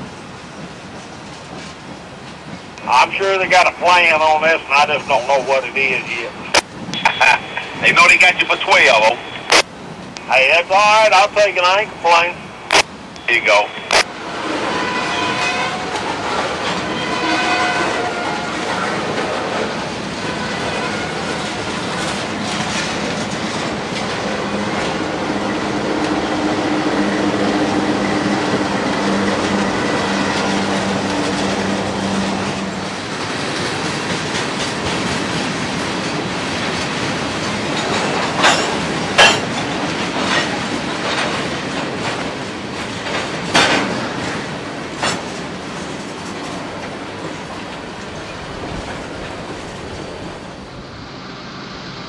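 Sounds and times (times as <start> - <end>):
train wheels rumbling and clattering: 0.0 - 13.2, 13.9 - 52.0
sharp metal clanks: 38.4 - 39.5.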